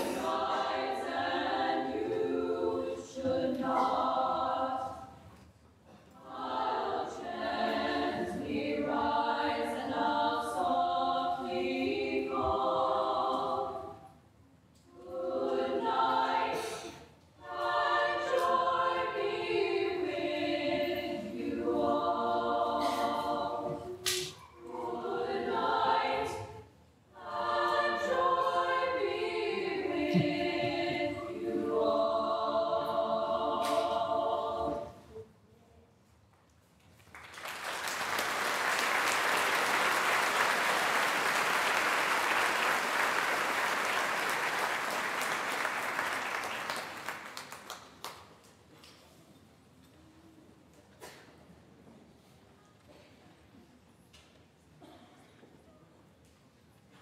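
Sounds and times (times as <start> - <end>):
women's choir singing a cappella: 0.0 - 35.4.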